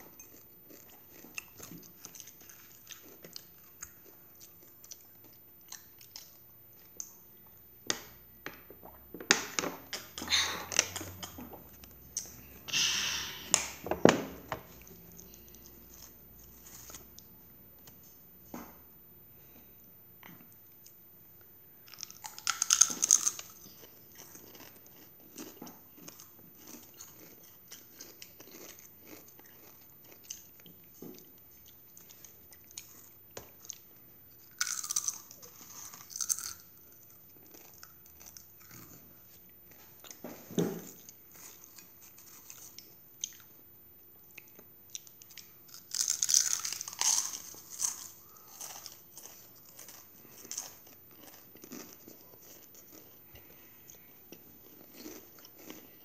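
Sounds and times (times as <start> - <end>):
chewing crunchy chips: 0.0 - 7.2, 21.8 - 40.2, 40.9 - 43.5, 44.3 - 56.0.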